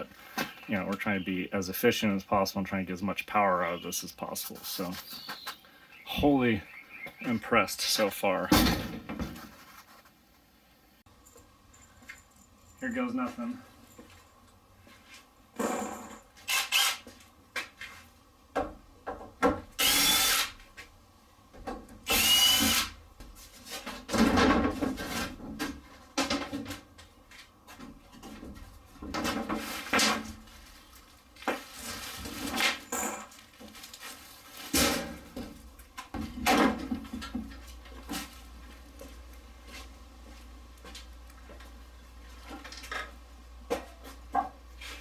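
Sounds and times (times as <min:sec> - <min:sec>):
cordless drill whirring: 0:16.5 - 0:17.0, 0:19.8 - 0:20.5, 0:22.1 - 0:22.9
wooden boards knocking and scraping: 0:23.7 - 0:27.0, 0:34.7 - 0:37.6.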